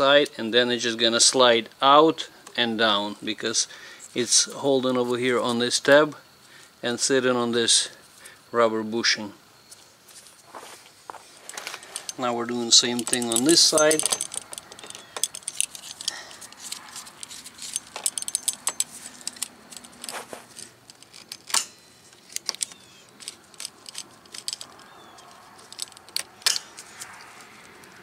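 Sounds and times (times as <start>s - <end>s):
metal and plastic fittings clicking: 11.5s - 27.2s.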